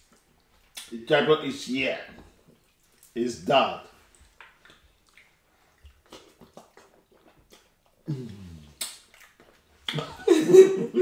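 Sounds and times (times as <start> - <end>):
mouth clicks and smacks: 0.0 - 1.0, 2.4 - 3.2, 4.0 - 10.2
short falling vocal sound: 8.1 - 8.8.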